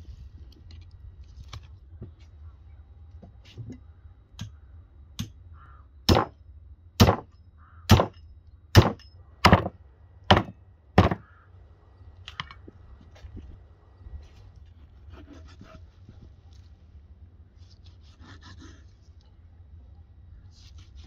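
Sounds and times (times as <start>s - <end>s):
cleaver chopping on wooden block: 6.1s - 6.3s, 7.0s - 7.3s, 7.9s - 8.2s, 8.8s - 9.7s, 10.3s - 11.2s.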